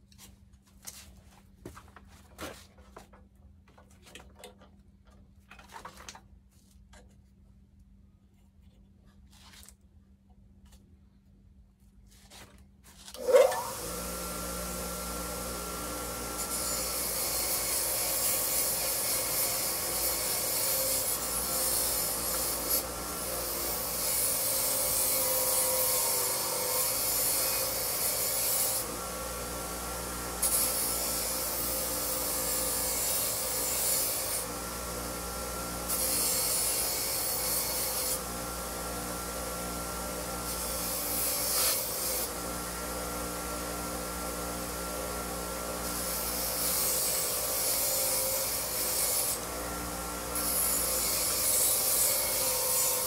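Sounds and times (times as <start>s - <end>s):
power tool motor running: 13.2s - 53.0s.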